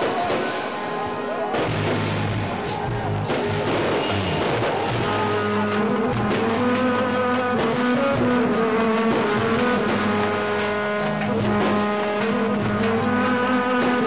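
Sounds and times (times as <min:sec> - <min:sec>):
electric saz: 0:00.0 - 0:14.0
keyboard drone notes: 0:00.0 - 0:14.0
oud: 0:00.1 - 0:14.0
qanun: 0:04.3 - 0:14.0.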